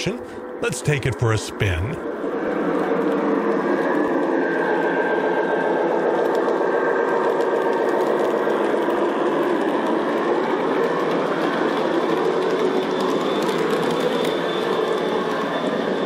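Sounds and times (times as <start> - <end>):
model train rolling on track: 5.8 - 16.0.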